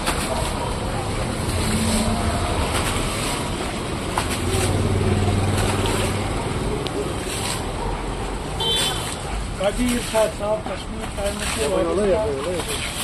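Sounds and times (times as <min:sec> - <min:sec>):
water splashing: 0:00.0 - 0:13.0
vehicle engine humming: 0:00.6 - 0:09.6.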